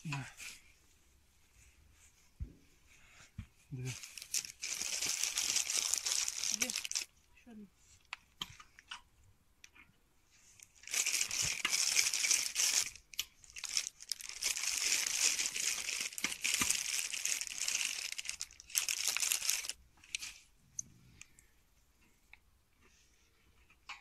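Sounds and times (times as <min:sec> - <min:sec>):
vinyl pool liner crinkling: 0:03.9 - 0:07.1, 0:10.6 - 0:20.5.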